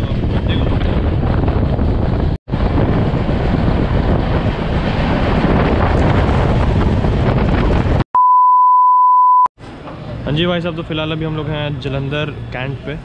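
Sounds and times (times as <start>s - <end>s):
wind buffeting microphone: 0.0s - 8.0s
steady high beep tone: 8.2s - 9.5s.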